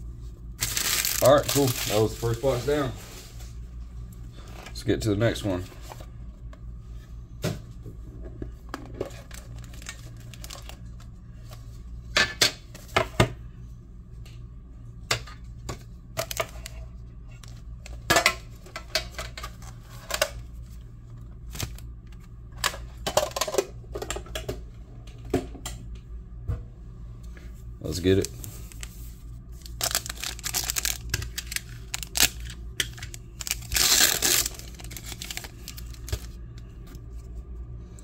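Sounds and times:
steady low hum: 0.0 - 38.0
card packs crinkling and rustling: 0.5 - 3.2, 9.0 - 11.1, 16.2 - 16.8, 27.8 - 37.3.

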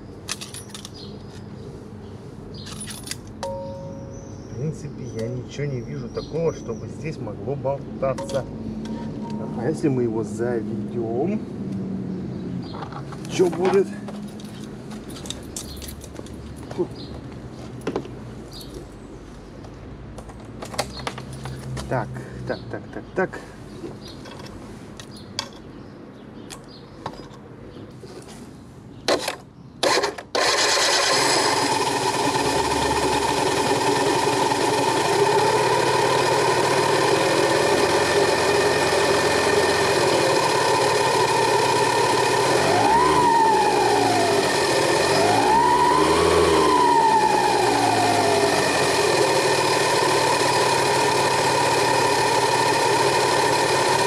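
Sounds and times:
scooter engine idling and revving: 29.1 - 54.0.

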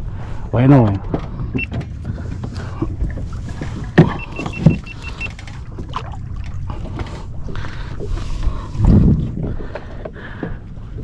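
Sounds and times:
steady low rumble: 0.0 - 11.0
thumps on a kayak: 1.0 - 4.9.

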